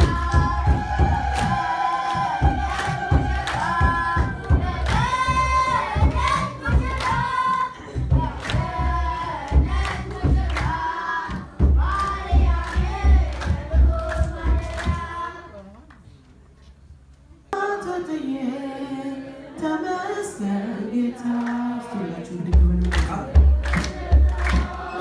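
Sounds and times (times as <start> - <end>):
steady drum beat: 0.0 - 15.3, 22.4 - 24.9
congregation singing a hymn: 0.0 - 15.5, 17.6 - 25.0.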